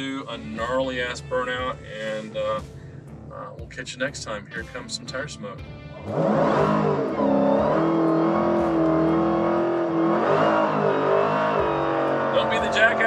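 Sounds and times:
car engine revving hard: 0:05.9 - 0:13.0.

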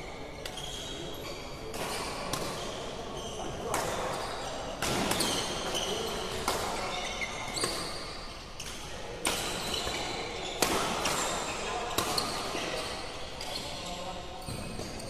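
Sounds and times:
shoes squeaking on court: 0:05.2 - 0:08.2.

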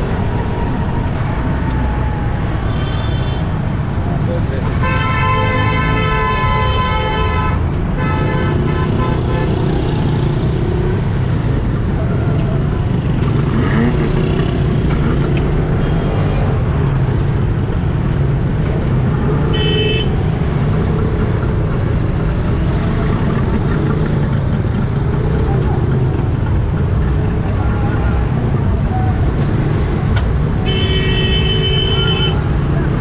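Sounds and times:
traffic engines rumbling: 0:00.0 - 0:33.0
vehicle horn honking: 0:30.6 - 0:32.4.

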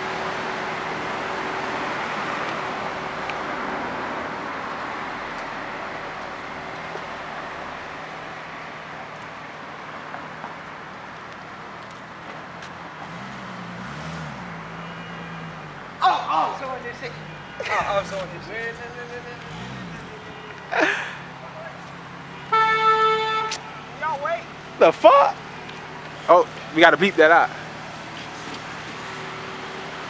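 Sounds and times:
road noise: 0:00.0 - 0:30.0
car engine driving off: 0:11.9 - 0:22.4.

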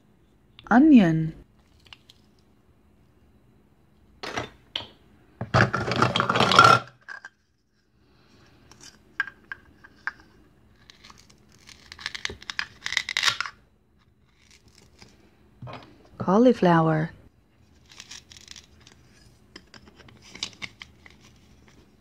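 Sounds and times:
velcro tearing: 0:10.8 - 0:13.4, 0:17.8 - 0:19.0.

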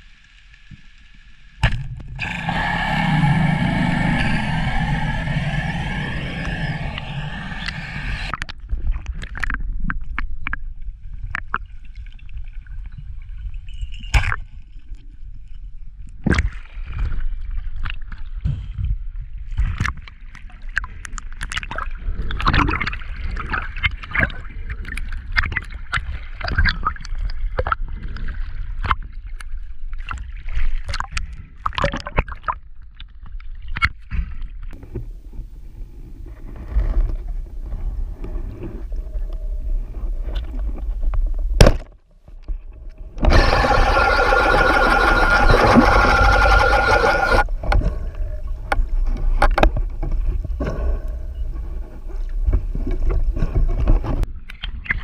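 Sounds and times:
loud steady drone: 0:01.6 - 0:08.3, 0:43.0 - 0:48.4
low underwater rumble: 0:01.6 - 0:13.6, 0:34.8 - 0:41.6, 0:42.2 - 0:54.2
underwater gurgling: 0:01.7 - 0:10.2, 0:43.0 - 0:51.8.

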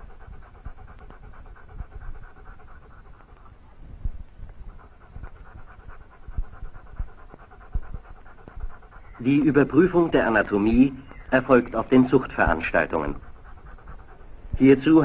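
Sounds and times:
dog panting: 0:00.0 - 0:15.0
soft low thumps: 0:03.8 - 0:09.2.

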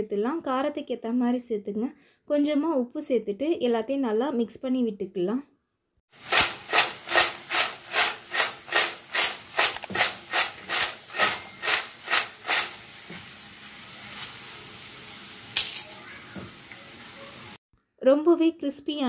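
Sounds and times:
chips rattling in a metal bowl: 0:06.2 - 0:12.9.

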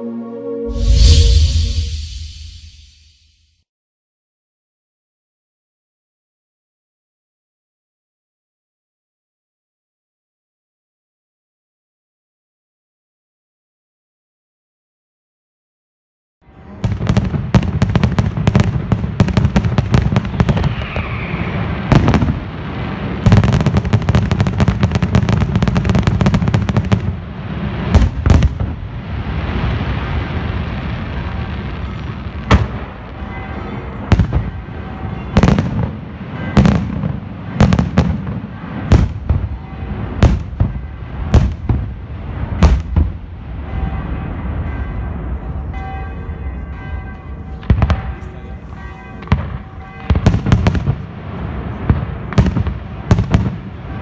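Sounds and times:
low rumble: 0:00.7 - 0:03.3
firework crackle: 0:00.8 - 0:03.2, 0:16.6 - 0:44.8
rapid firework bangs: 0:34.0 - 0:44.2, 0:49.2 - 0:54.0.

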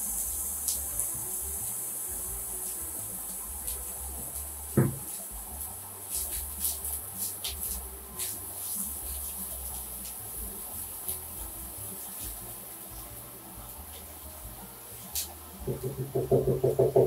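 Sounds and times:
onion sizzling in a pan: 0:00.0 - 0:17.0
cutting board knock: 0:04.8 - 0:05.1, 0:15.7 - 0:17.0.

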